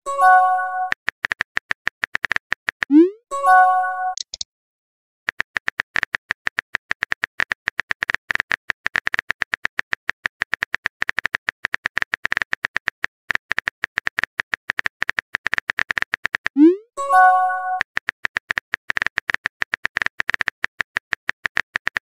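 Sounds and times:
phone keyboard typing clicks: 0:04.1 - 0:04.4.

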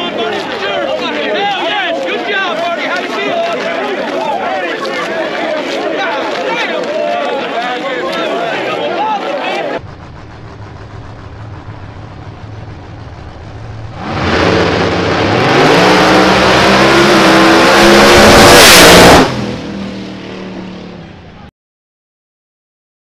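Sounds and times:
race cars idling: 0:09.5 - 0:18.3
race cars accelerating at full throttle: 0:09.8 - 0:21.4.

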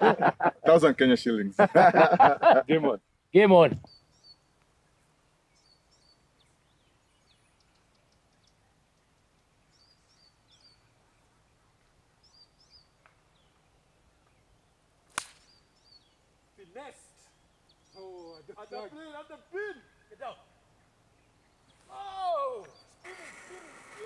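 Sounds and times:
small birds chirping: 0:00.0 - 0:24.0
golf club striking ball: 0:15.1 - 0:15.6.

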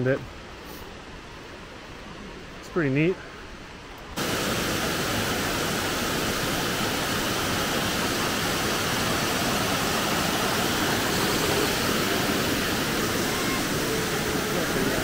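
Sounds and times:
waterfall rushing: 0:04.2 - 0:15.0.

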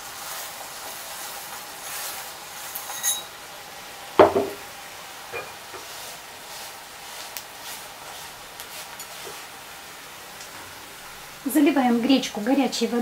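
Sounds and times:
faint sizzle: 0:00.0 - 0:13.0
spatula scraping a frying pan: 0:00.3 - 0:03.4, 0:05.4 - 0:09.6.

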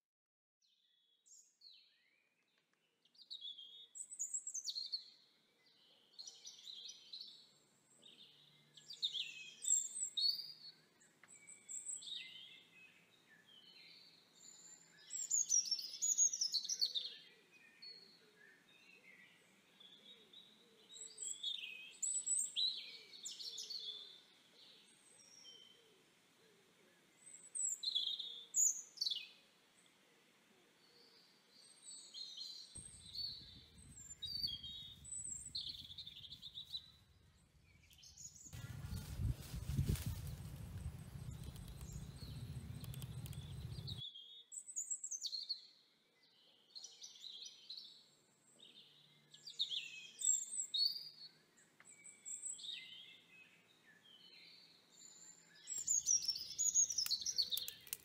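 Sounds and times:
wild birds calling and chirping: 0:30.7 - 0:44.0.

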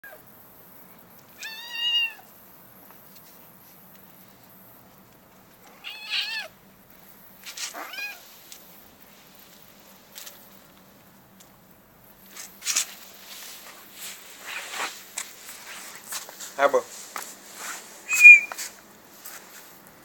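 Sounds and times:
kitten meowing: 0:01.4 - 0:02.2, 0:05.8 - 0:06.5, 0:07.8 - 0:08.2, 0:18.1 - 0:18.6.

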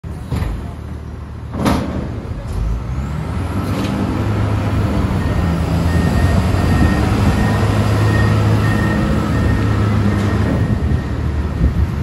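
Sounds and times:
diesel engine droning under load: 0:00.1 - 0:12.0.

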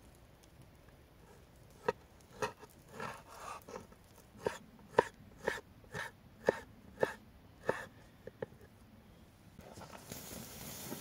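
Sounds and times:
knife chopping on wooden board: 0:04.4 - 0:07.9.

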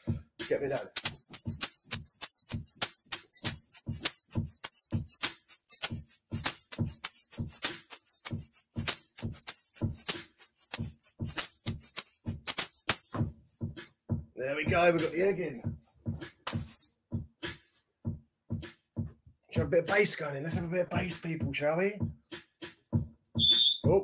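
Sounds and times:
looped drum beat: 0:00.0 - 0:24.0
egg shaker rattling: 0:00.5 - 0:13.7, 0:14.5 - 0:17.0.

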